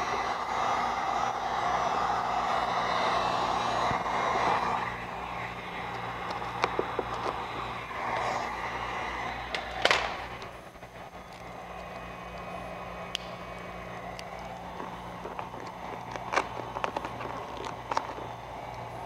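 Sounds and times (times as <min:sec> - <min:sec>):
steady low hum: 0:00.0 - 0:19.0
vinyl film rustling: 0:04.0 - 0:19.0
film crackle: 0:04.6 - 0:19.0.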